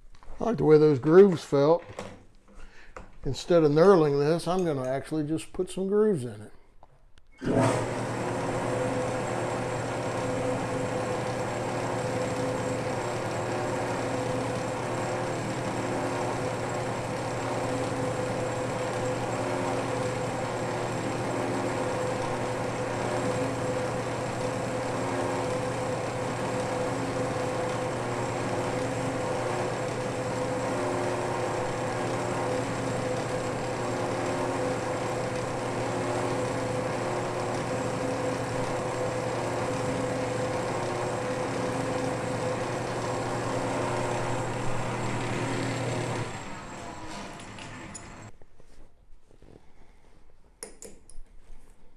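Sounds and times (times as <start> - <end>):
metal lathe humming: 7.4 - 48.3.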